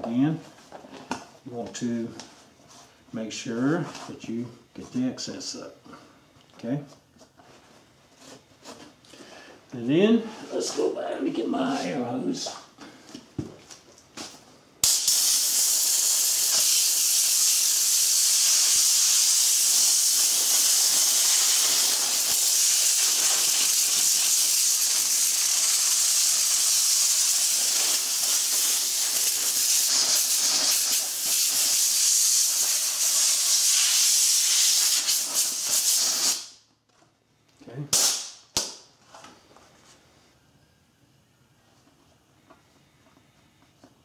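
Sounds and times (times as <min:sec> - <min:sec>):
compressed air hissing: 0:14.8 - 0:36.6.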